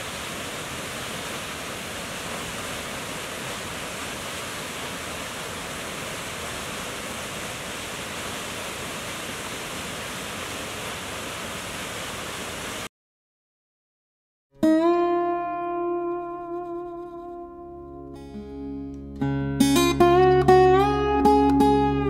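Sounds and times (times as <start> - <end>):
waterfall rushing: 0.0 - 12.9
acoustic guitar chord: 14.6 - 22.0.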